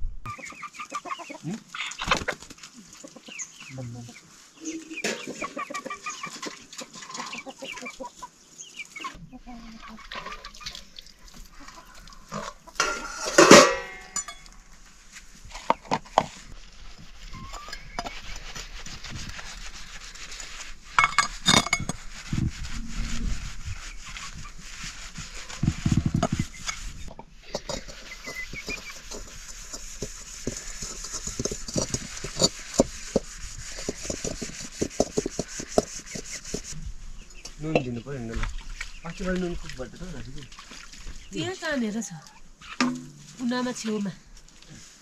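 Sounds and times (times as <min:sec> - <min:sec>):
pots and utensils clinking: 0:12.3 - 0:14.6.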